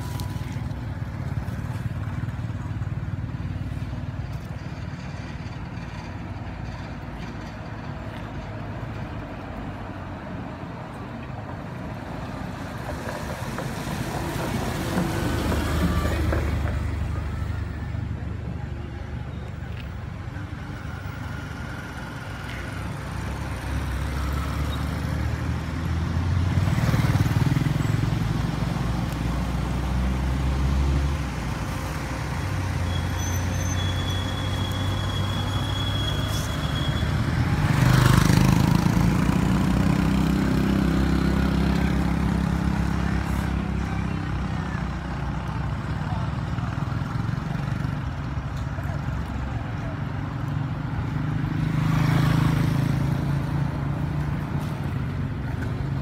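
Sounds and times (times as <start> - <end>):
traffic rumbling past: 0.0 - 56.0.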